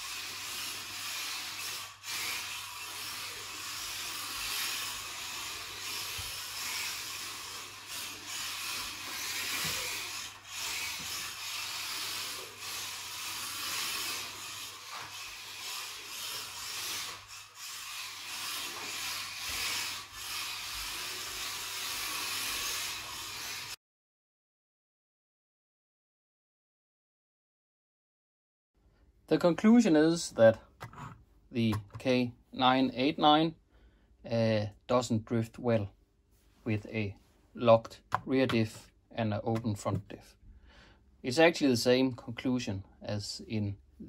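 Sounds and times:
small electric drivetrains whirring: 0:00.0 - 0:23.8.

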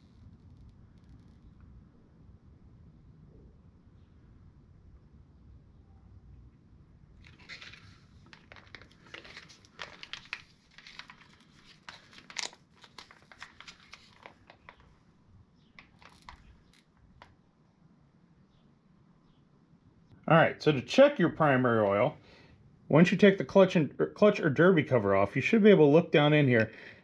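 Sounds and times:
plastic bottle crackling: 0:07.2 - 0:15.0, 0:15.6 - 0:17.4.

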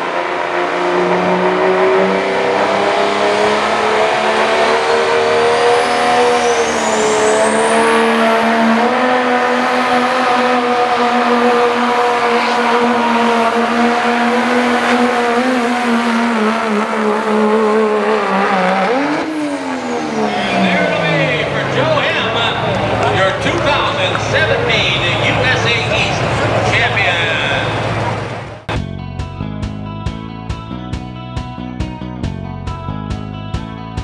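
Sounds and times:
diesel engine at high revs: 0:00.0 - 0:28.8
high whistle climbing: 0:05.6 - 0:08.4.

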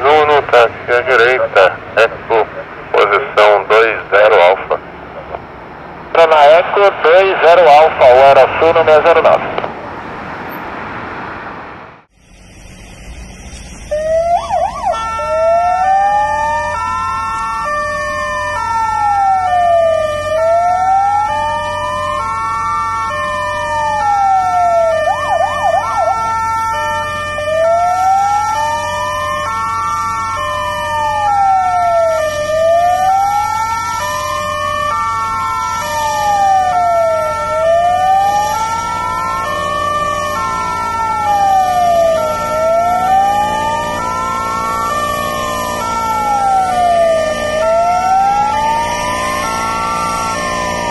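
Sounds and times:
fire truck siren wailing: 0:00.0 - 0:50.9
two-tone hi-lo siren: 0:12.2 - 0:50.9
siren fast yelps: 0:13.8 - 0:50.9.

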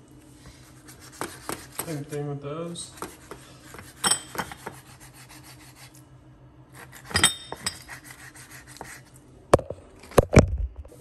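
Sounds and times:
knife scraping on cutting board: 0:00.5 - 0:02.2, 0:02.8 - 0:06.0, 0:06.7 - 0:09.2.

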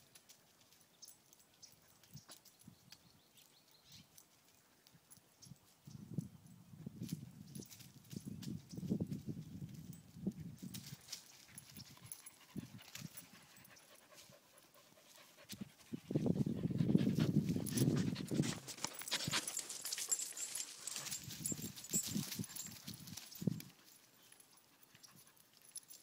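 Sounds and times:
dog panting: 0:12.0 - 0:21.1.

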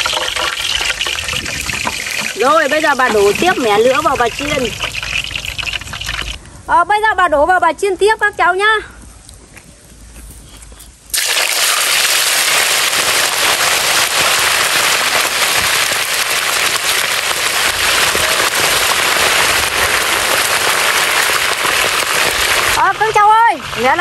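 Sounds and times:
chicken sizzling in hot oil: 0:00.0 - 0:06.4, 0:11.1 - 0:24.0.

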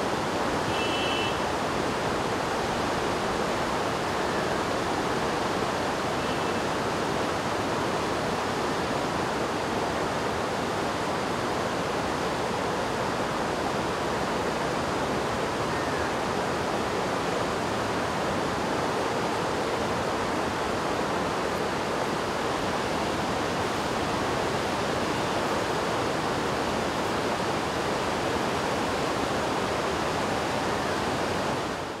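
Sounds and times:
river rushing: 0:00.0 - 0:32.0.

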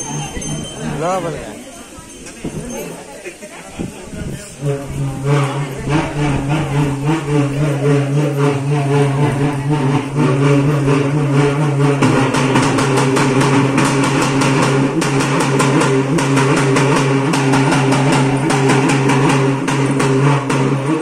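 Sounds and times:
fast drum strokes: 0:03.8 - 0:21.0
held drone: 0:04.6 - 0:21.0.

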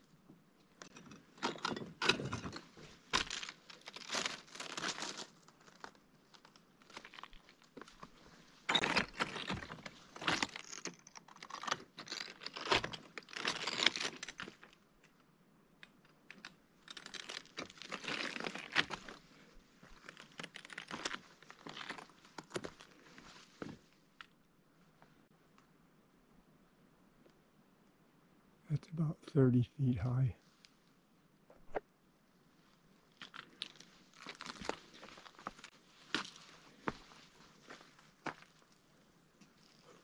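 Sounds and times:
footsteps crunching on rock rubble: 0:33.7 - 0:38.5.

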